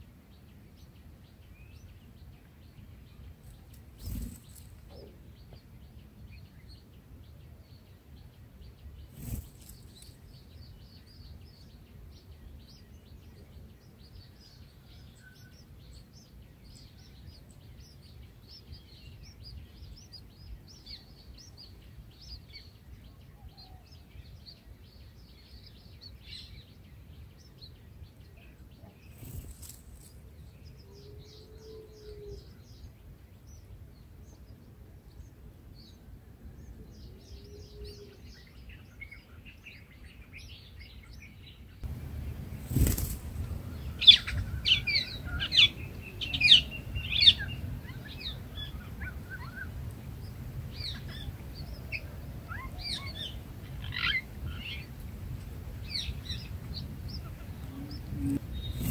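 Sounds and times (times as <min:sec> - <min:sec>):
faint bird chirps: 0:00.3 - 0:54.9, 0:55.8 - 0:58.9
nestlings begging chirps: 0:08.6 - 0:14.7, 0:15.3 - 0:23.0, 0:24.4 - 0:31.4, 0:41.8 - 0:58.9.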